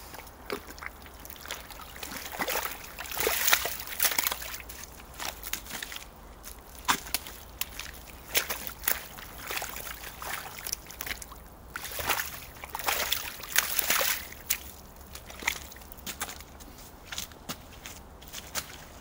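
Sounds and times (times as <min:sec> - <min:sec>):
splashing in puddle water: 0:00.0 - 0:17.2
boots squelching in mud: 0:00.0 - 0:19.0.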